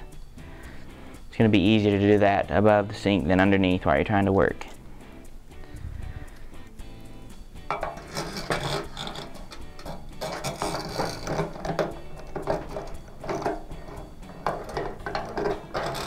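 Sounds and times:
soft guitar music: 0.0 - 16.0
metal fittings clinking against sink: 7.6 - 16.0.

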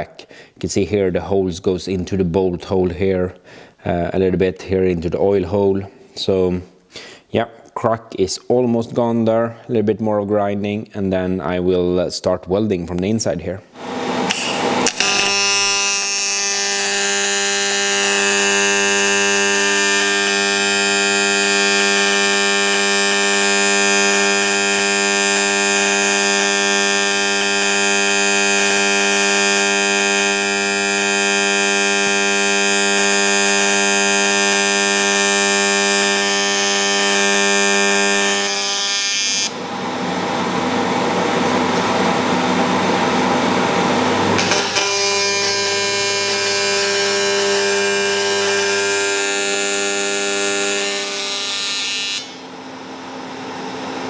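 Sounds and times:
welding arc buzzing: 13.8 - 53.1.

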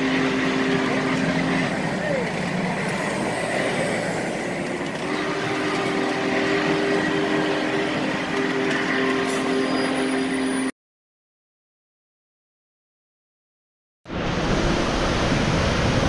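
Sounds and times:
train wheels rumbling on track: 0.0 - 10.7.

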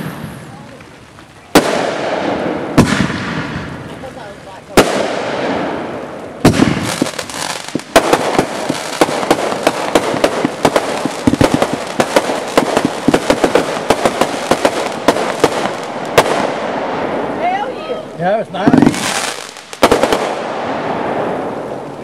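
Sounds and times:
fireworks bangs and crackles: 0.0 - 22.0.

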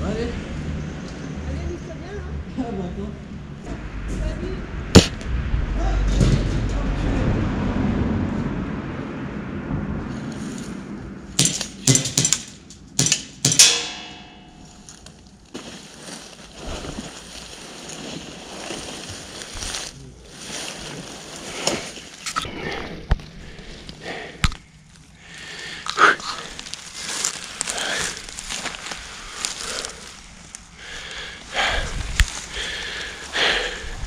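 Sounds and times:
sharp knocks: 4.9 - 5.4, 11.4 - 14.6.

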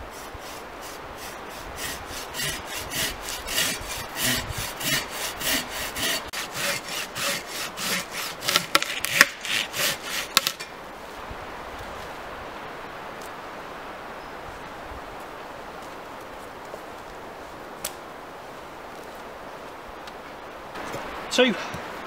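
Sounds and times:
hand saw cutting log: 0.0 - 10.7
wood cracking: 0.2 - 10.7.

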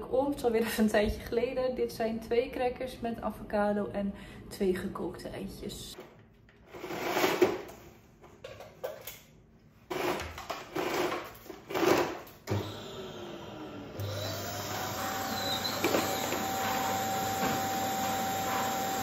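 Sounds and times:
vacuum cleaner suction: 12.5 - 19.0.

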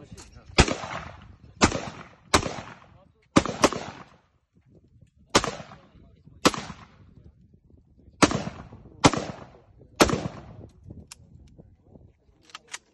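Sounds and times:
rifle shots: 0.5 - 4.2, 5.3 - 7.0, 8.2 - 10.7.

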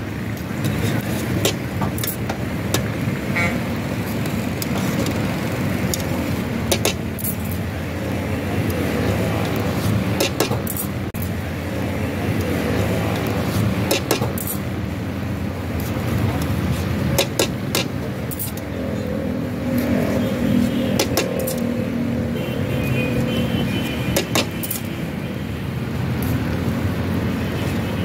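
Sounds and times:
road traffic rumble: 0.0 - 28.0
car horn toot: 22.3 - 25.0.

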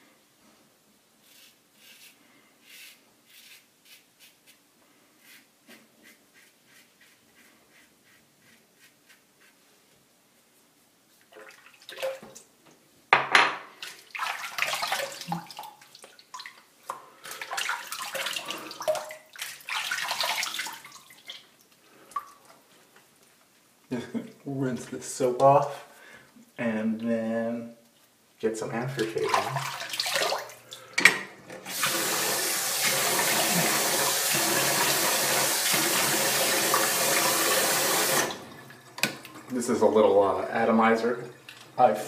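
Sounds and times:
razor scraping stubble: 1.2 - 4.6
tap water running and splashing: 13.8 - 16.6, 29.3 - 30.6, 31.6 - 39.5, 41.3 - 41.8.

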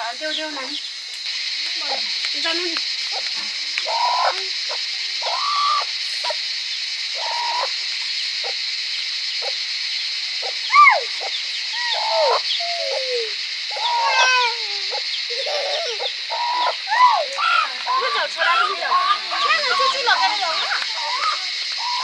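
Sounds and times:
high-pitched insect drone: 0.0 - 22.0
chickens clucking: 1.8 - 6.4, 7.2 - 8.7, 10.4 - 22.0
chickens squawking: 3.1 - 6.4, 7.2 - 7.8, 10.4 - 22.0.

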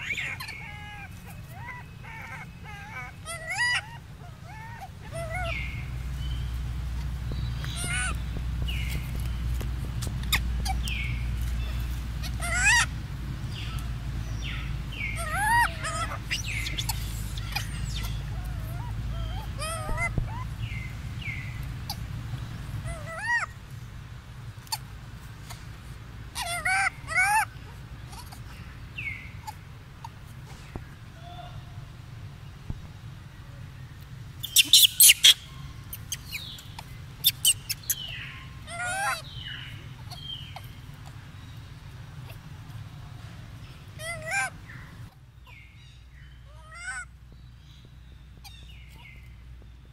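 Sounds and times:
infant monkey cooing: 0.0 - 6.0, 7.6 - 9.0, 10.2 - 12.9, 14.4 - 22.2, 22.8 - 23.6, 26.3 - 30.2, 34.4 - 41.2, 43.9 - 45.6, 46.5 - 47.1
steady low hum: 0.0 - 34.6
bird chirps: 10.2 - 23.5, 34.4 - 42.4, 43.6 - 49.9
long wavering monkey call: 14.4 - 21.3, 26.4 - 28.6, 34.4 - 40.8.

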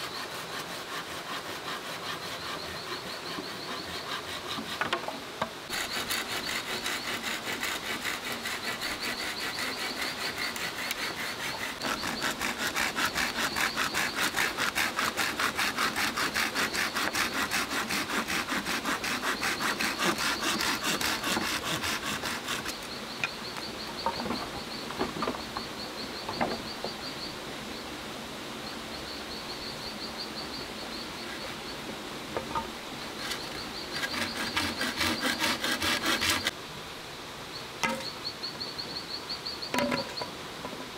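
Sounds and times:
hand saw cutting bamboo: 0.0 - 5.1, 5.7 - 22.9, 33.2 - 36.5
insects buzzing: 0.0 - 36.6, 37.4 - 40.8.

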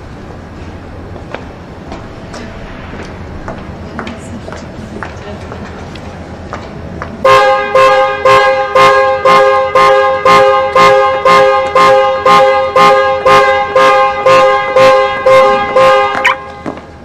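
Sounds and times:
car horn alarm blasts: 7.3 - 16.8.

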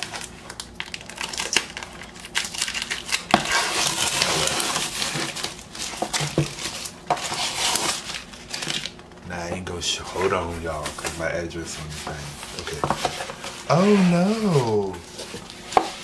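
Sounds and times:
crinkling: 0.0 - 16.0
tape and cardboard ripping: 0.8 - 8.9.

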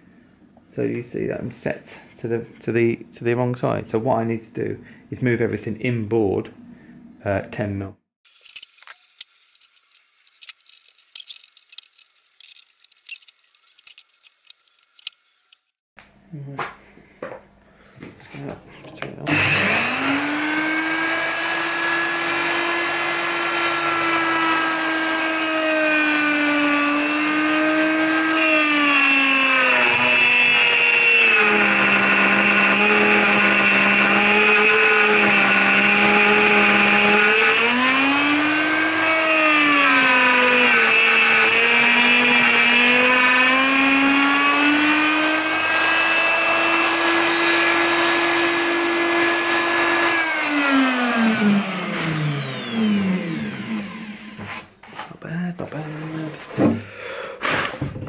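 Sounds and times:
router motor whining: 8.3 - 15.7, 19.3 - 54.7.

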